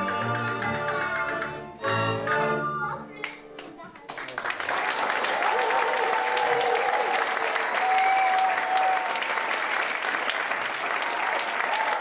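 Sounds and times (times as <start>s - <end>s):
audience clapping: 0.0s - 1.6s, 3.2s - 12.0s
people cheering: 4.6s - 12.0s.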